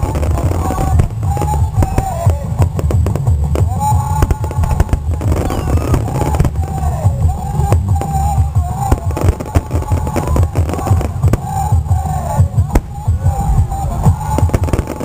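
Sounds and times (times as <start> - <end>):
deep rumble: 0.0 - 15.0
fireworks bursting and crackling: 0.0 - 15.0
music playing: 0.0 - 15.0.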